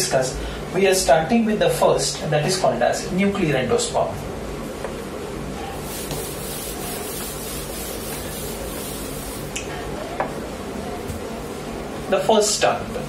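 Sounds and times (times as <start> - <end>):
duster wiping whiteboard: 5.8 - 9.6.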